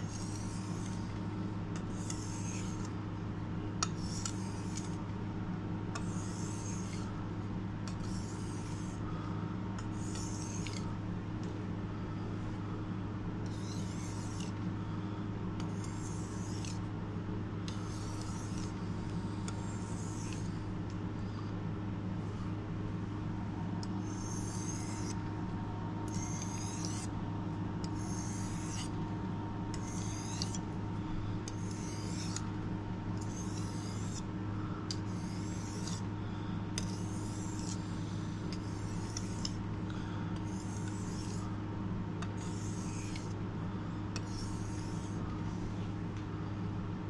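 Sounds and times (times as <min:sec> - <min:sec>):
knife rasping on whetstone: 0:00.0 - 0:01.2, 0:01.8 - 0:02.9, 0:03.8 - 0:05.0, 0:06.0 - 0:07.2, 0:07.9 - 0:09.0, 0:09.9 - 0:10.9, 0:13.5 - 0:14.6, 0:15.6 - 0:16.8, 0:17.7 - 0:20.7, 0:24.0 - 0:25.2, 0:26.0 - 0:27.2, 0:27.8 - 0:29.0, 0:29.7 - 0:30.7, 0:31.4 - 0:32.5, 0:33.2 - 0:34.3, 0:34.9 - 0:36.1, 0:36.8 - 0:41.6, 0:42.2 - 0:43.4, 0:44.2 - 0:45.3
steady low hum: 0:00.0 - 0:47.0.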